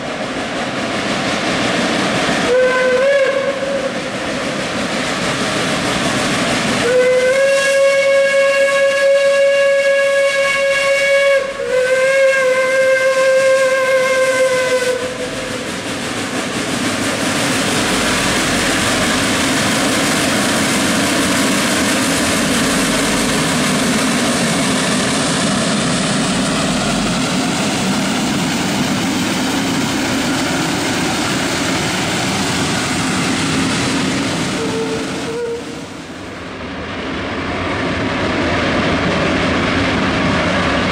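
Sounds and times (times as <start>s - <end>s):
steam locomotive chugging past: 0.0s - 40.9s
steam whistle blasts: 2.5s - 4.0s, 6.8s - 15.4s, 34.6s - 35.9s.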